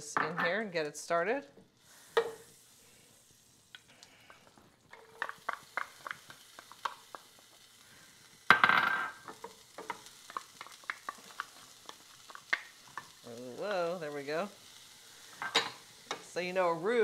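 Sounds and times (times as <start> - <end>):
onion sizzling in butter: 0.9 - 17.0.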